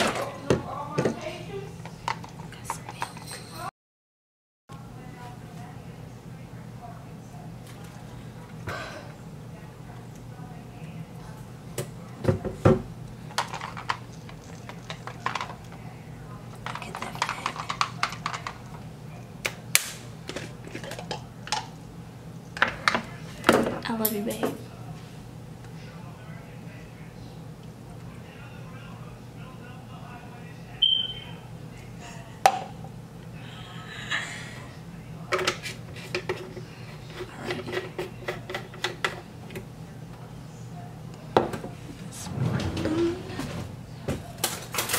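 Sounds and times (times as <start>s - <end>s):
plastic items clicking and tapping: 13.4s - 15.6s, 16.6s - 18.6s.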